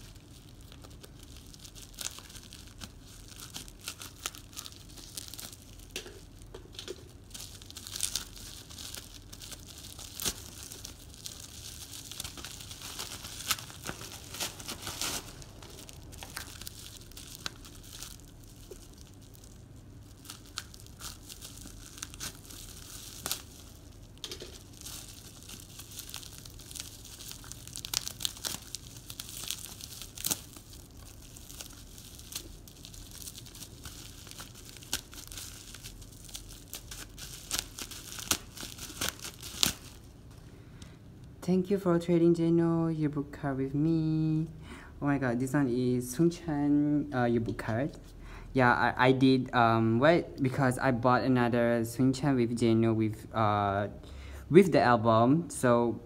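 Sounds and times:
packaging tearing and crinkling: 0.0s - 40.4s.

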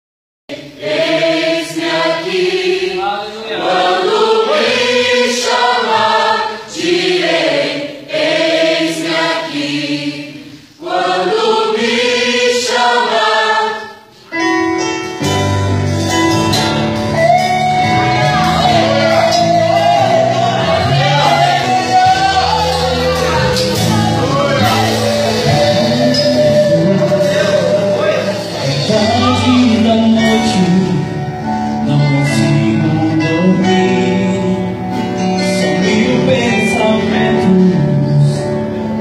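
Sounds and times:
choir singing a hymn: 0.5s - 14.3s, 17.2s - 39.0s
band playing: 0.5s - 39.0s.

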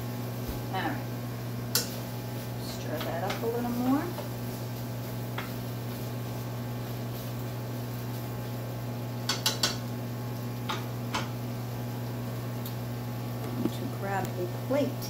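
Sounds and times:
microwave oven humming: 0.0s - 15.0s
wooden spatula knocking on skillet: 9.3s - 9.8s.

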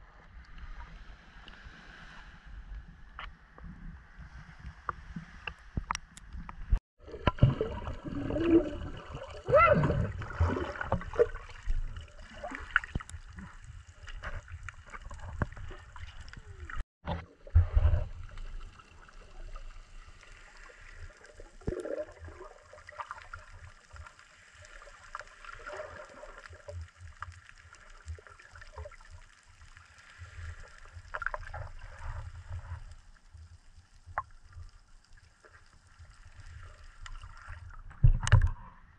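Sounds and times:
water sloshing and gurgling: 0.1s - 38.9s
muffled underwater rumble: 6.2s - 23.8s.

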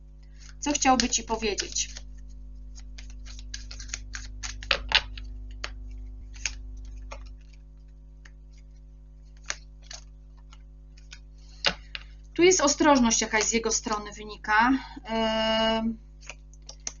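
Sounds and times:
steady low hum: 0.0s - 17.0s
cards clicking on a table: 0.7s - 2.0s, 2.7s - 7.6s, 8.2s - 12.1s, 16.2s - 17.0s.

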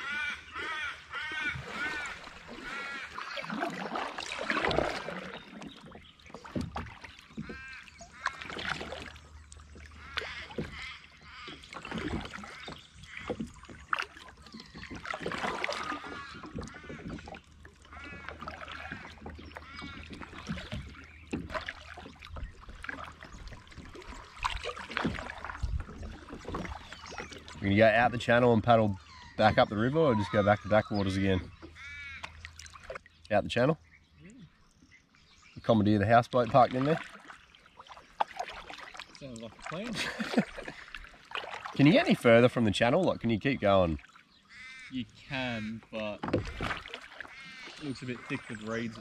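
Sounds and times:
kayak paddle strokes in water: 0.0s - 28.4s, 35.6s - 49.0s
birds calling: 0.0s - 49.0s
water splashes and drips: 1.3s - 28.8s, 31.0s - 34.8s, 35.6s - 49.0s.

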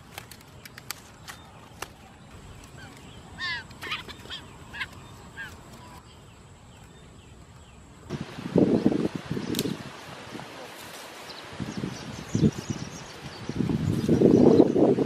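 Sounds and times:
rustling of leaves and undergrowth: 0.0s - 15.0s
quail chirping calls: 2.6s - 6.0s.

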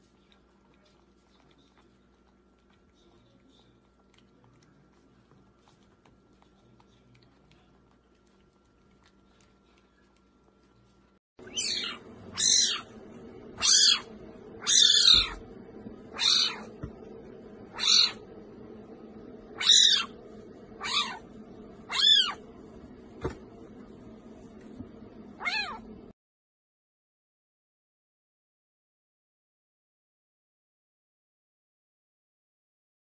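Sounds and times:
puppy licking: 0.0s - 11.2s
kitten crying: 11.5s - 12.9s, 13.6s - 15.4s, 16.1s - 16.7s, 17.7s - 18.2s, 19.6s - 20.2s, 20.8s - 21.3s, 21.9s - 22.4s, 25.4s - 25.9s.

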